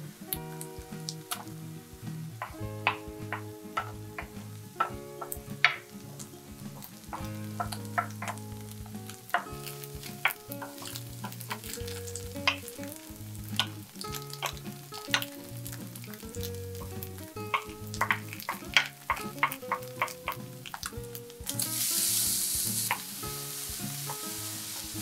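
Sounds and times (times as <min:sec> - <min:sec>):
food sizzling in a frying pan: 0:00.0 - 0:25.0
spatula clicking against pan: 0:06.8 - 0:21.6.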